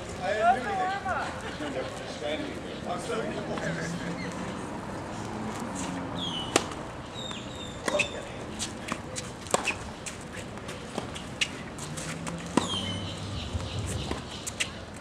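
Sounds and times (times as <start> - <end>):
shoe squeaks: 5.8 - 14.8
tennis ball struck by rackets: 6.5 - 6.8, 7.8 - 8.1, 8.9 - 9.8, 10.9 - 13.0.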